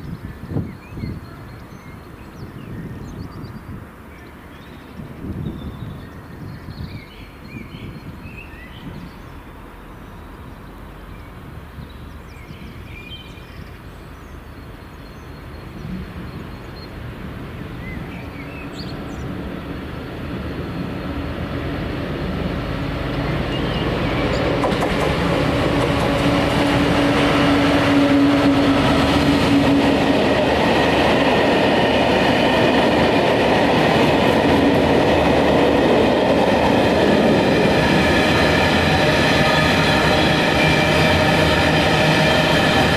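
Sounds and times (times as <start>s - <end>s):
freight train passing: 0.0s - 42.9s
train wheels on rails: 14.7s - 42.9s.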